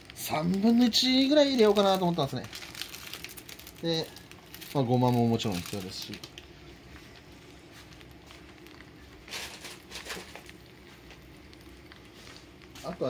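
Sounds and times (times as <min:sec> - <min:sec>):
noodles sizzling in oil: 0:00.0 - 0:06.3, 0:07.8 - 0:13.0.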